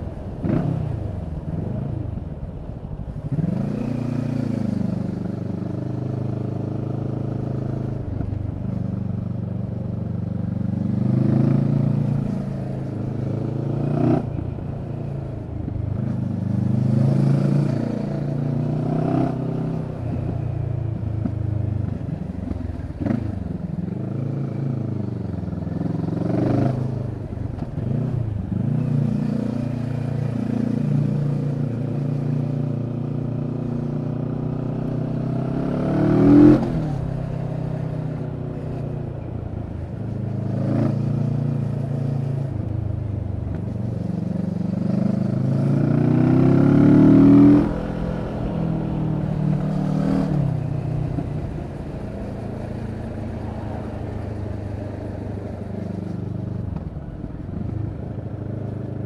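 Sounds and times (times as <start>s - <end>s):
motorcycle engine revving: 21.2s - 38.9s, 39.8s - 58.8s.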